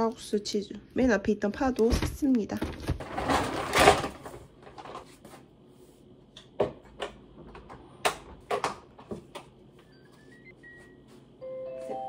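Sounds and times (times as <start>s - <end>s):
faint electronic beep: 9.8s - 12.0s.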